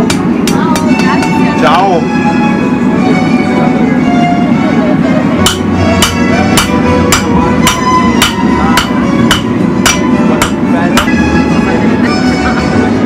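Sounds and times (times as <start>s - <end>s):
hammer striking iron on anvil: 5.4s - 11.2s.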